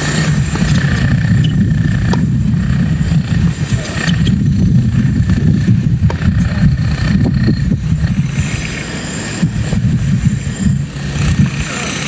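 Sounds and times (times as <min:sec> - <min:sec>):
wind buffeting microphone: 0:00.0 - 0:12.0
tennis balls being struck: 0:02.0 - 0:02.4, 0:06.0 - 0:06.4.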